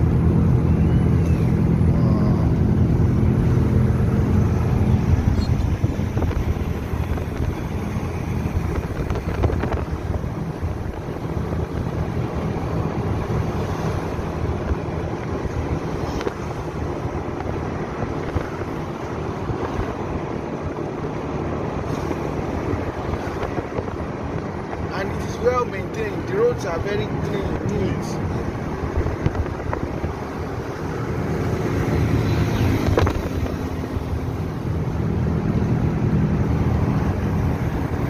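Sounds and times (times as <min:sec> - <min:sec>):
car road and wind noise: 0:00.0 - 0:38.0.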